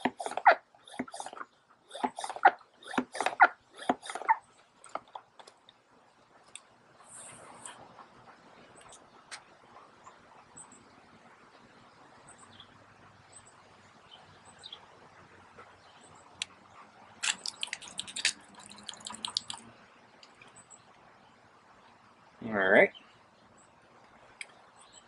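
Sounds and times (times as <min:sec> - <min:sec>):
sprayer nozzle clicking and spluttering: 0:00.0 - 0:05.6, 0:17.2 - 0:19.6.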